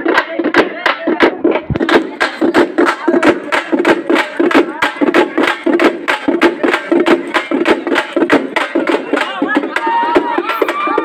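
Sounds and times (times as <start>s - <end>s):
steady din: 0.0s - 11.0s
voices: 0.0s - 11.0s
loud music with fast drum beat: 0.7s - 11.0s.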